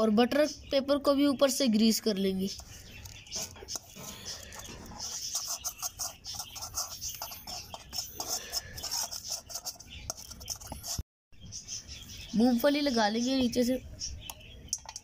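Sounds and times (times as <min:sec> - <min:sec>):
metal spoon scraping pan: 0:02.5 - 0:11.0.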